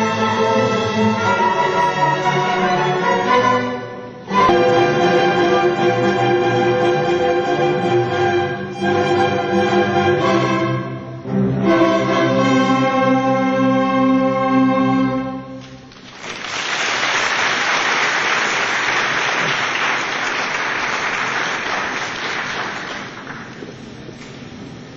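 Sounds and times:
orchestra strings playing chords: 0:00.0 - 0:15.9
audience applauding: 0:15.6 - 0:23.6.

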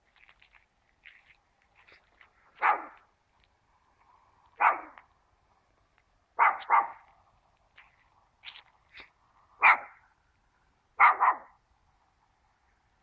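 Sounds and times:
dog barking: 0:02.6 - 0:03.0, 0:04.6 - 0:05.0, 0:06.4 - 0:07.1, 0:09.6 - 0:10.0, 0:11.0 - 0:11.6.

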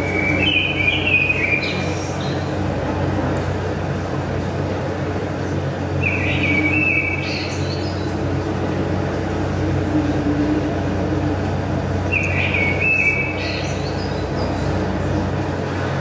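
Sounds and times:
bird song: 0:00.0 - 0:02.6, 0:05.9 - 0:08.5, 0:12.0 - 0:14.9
low hum and hiss: 0:00.0 - 0:16.0.

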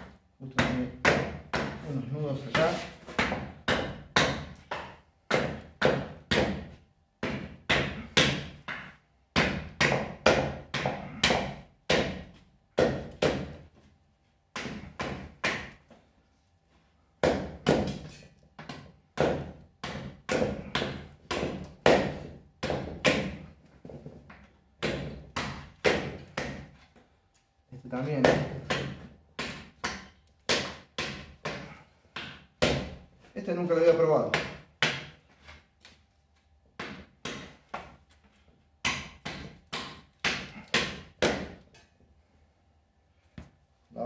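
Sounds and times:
knife chopping wood: 0:00.6 - 0:13.6, 0:17.2 - 0:23.4, 0:24.8 - 0:26.8, 0:28.1 - 0:33.0, 0:38.8 - 0:41.6.

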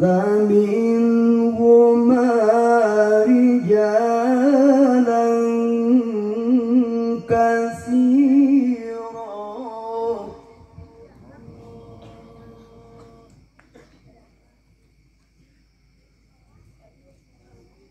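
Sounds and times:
man chanting over loudspeakers: 0:00.0 - 0:13.4.

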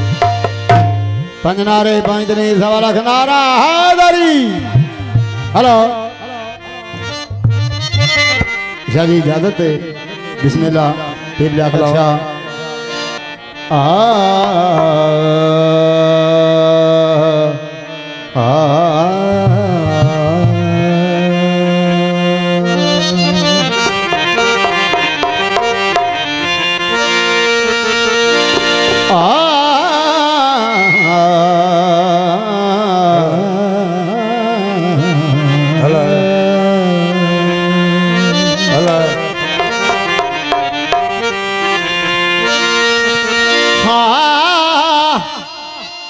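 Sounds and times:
hand drums: 0:00.0 - 0:02.6, 0:14.2 - 0:15.2, 0:23.2 - 0:26.8, 0:28.4 - 0:29.4, 0:38.8 - 0:41.8
harmonium: 0:00.0 - 0:46.0
man singing into a microphone: 0:01.0 - 0:27.1, 0:27.8 - 0:46.0.

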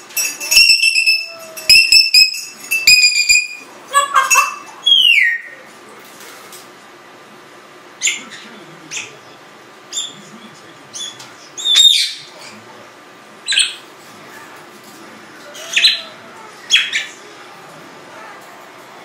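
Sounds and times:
parrot high-pitched calls: 0:00.4 - 0:05.7, 0:10.9 - 0:12.3, 0:15.5 - 0:17.2.

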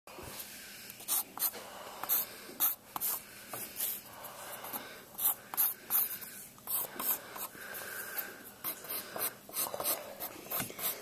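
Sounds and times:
pencil scratching on paper: 0:04.6 - 0:07.5, 0:08.6 - 0:11.0.

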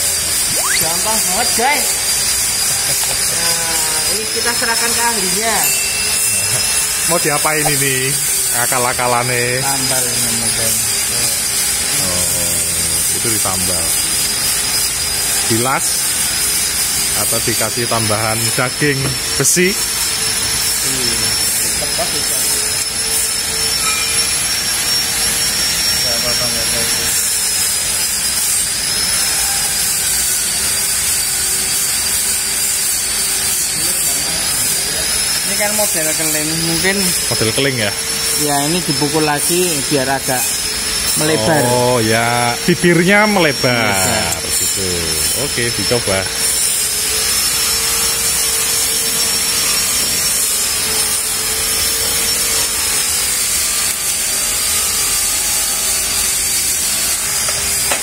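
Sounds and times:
motor whirring: 0:00.0 - 0:16.6, 0:31.7 - 0:55.6
thin high-pitched whine: 0:00.0 - 0:58.0.

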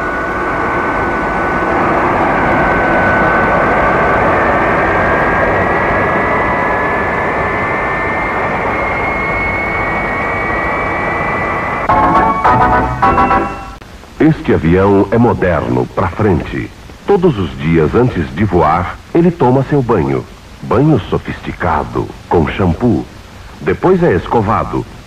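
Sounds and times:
jet engines roaring with whine: 0:00.0 - 0:13.1.

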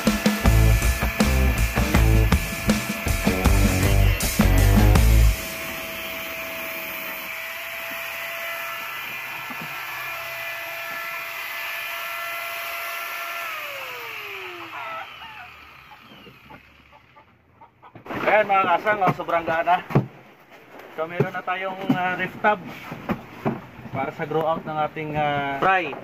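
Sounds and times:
electric drill running: 0:00.0 - 0:17.2.

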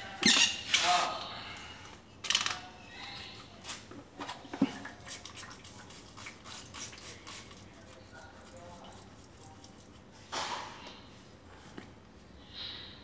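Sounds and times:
spray bottle squirting: 0:05.0 - 0:07.7.

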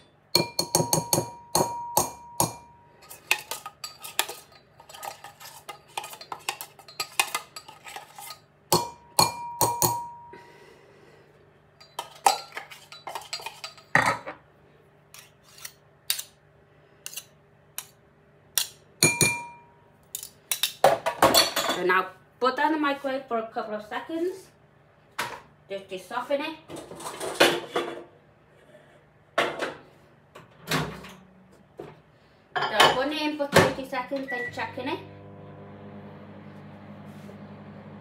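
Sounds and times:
spoon clinking against bowl: 0:00.4 - 0:05.0, 0:08.7 - 0:10.4, 0:19.0 - 0:19.7.

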